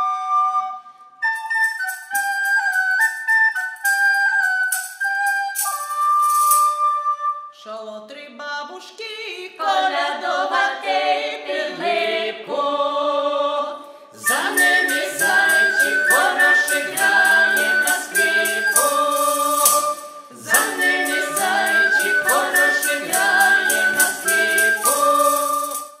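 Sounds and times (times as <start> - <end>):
wooden folk pipes: 0.0 - 7.6, 14.2 - 26.0
tambourine jingling: 3.8 - 6.8, 14.2 - 26.0
choir singing a carol: 9.2 - 26.0.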